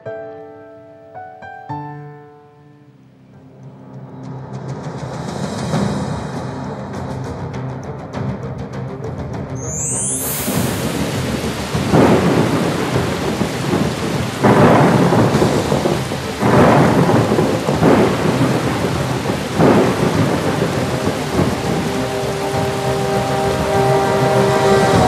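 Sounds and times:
heavy rain pouring: 9.8 - 25.0
thunder claps: 10.0 - 25.0.

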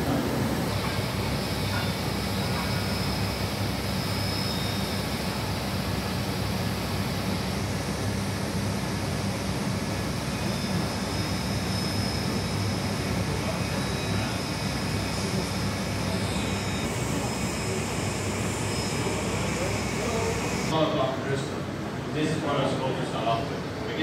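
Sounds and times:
faint high whine: 0.0 - 21.3
cutting wheel motors droning: 10.2 - 20.7.

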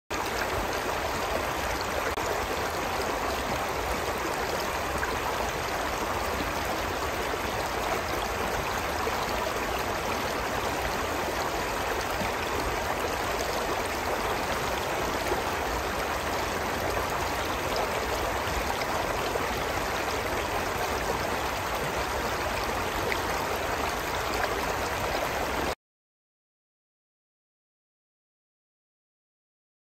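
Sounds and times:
stream flowing over rocks: 0.1 - 25.8.

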